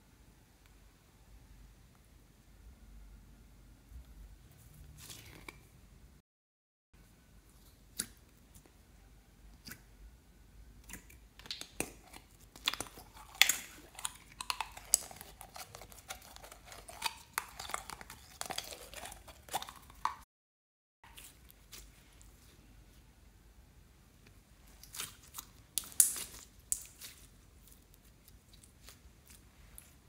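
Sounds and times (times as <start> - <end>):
slime squelching and clicking: 10.8 - 20.2, 24.8 - 29.9.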